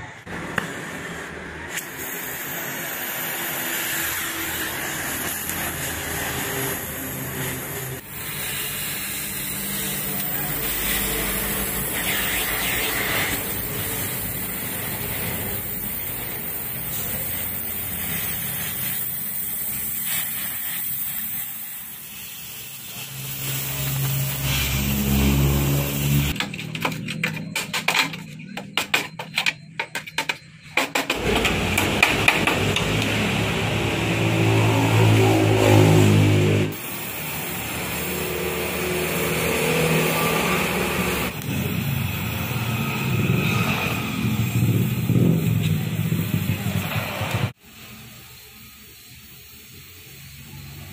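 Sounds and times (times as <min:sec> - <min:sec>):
welding torch flame hissing: 0:00.1 - 0:26.4, 0:31.2 - 0:50.9.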